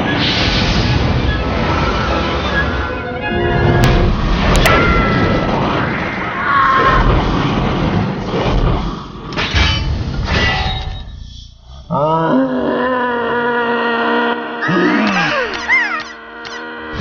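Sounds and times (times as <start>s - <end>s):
heavy rumbling crashes: 0.0s - 11.2s.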